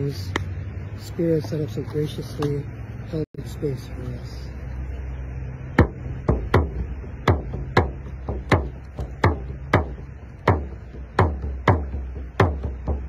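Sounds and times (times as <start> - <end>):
frame drum beating: 5.8 - 13.0.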